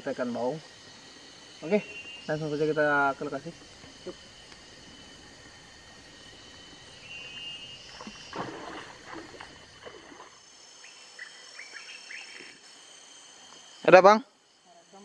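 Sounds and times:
insects chirring: 0:00.0 - 0:15.0
water splashing around wading people: 0:07.8 - 0:10.4.

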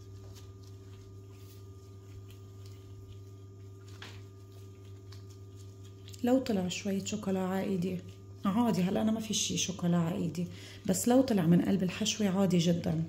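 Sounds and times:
dough handled by hand: 0:00.0 - 0:10.2
low electrical hum: 0:00.0 - 0:13.0.

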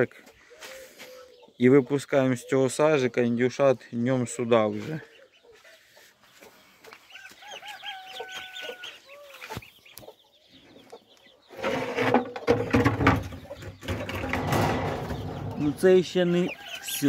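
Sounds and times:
faint high peeping: 0:00.0 - 0:12.4, 0:13.1 - 0:17.0
poultry calling: 0:00.4 - 0:03.5, 0:04.5 - 0:17.0
loud rustling and knocking: 0:11.6 - 0:15.9.

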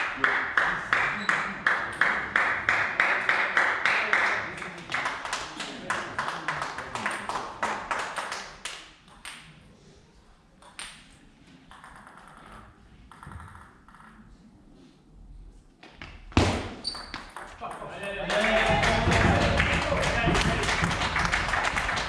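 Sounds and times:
table tennis ball clicking: 0:11.7 - 0:14.2.

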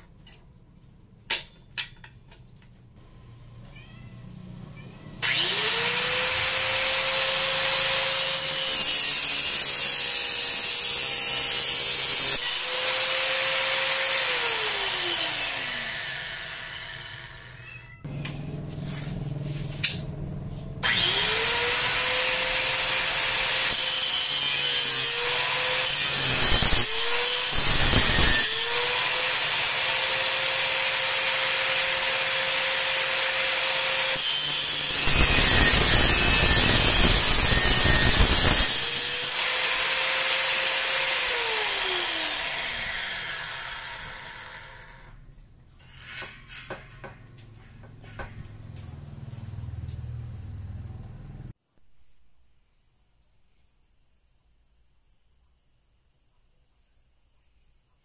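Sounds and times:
angle grinder whining: 0:05.2 - 0:45.2
grinder disc cutting steel: 0:05.2 - 0:45.2, 0:45.8 - 0:48.5.

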